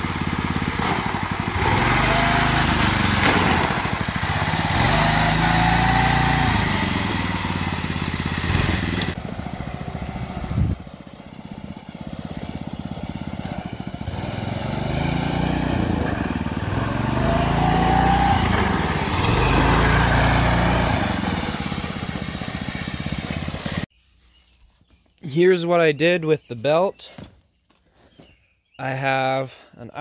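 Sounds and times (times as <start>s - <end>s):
go-kart engine running: 0.0s - 23.9s.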